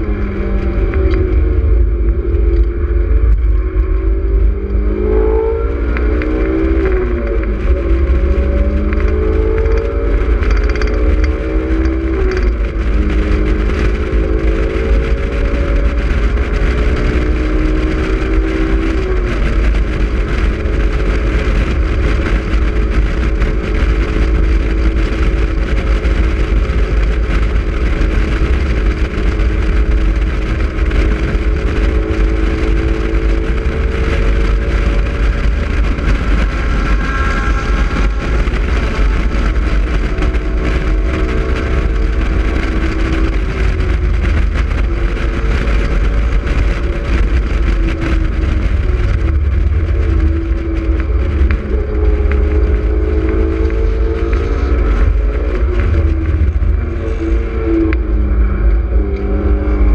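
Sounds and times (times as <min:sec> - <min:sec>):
wind rumble on microphone: 0:00.0 - 0:59.9
car engine revving through upshifts: 0:03.8 - 0:25.1.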